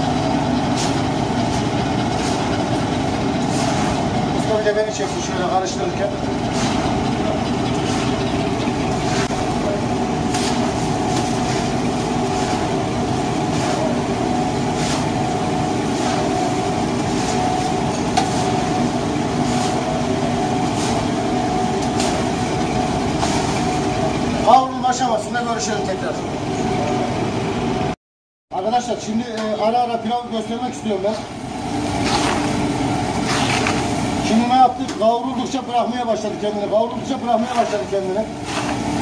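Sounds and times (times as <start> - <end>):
droning hum: 0.0 - 28.0.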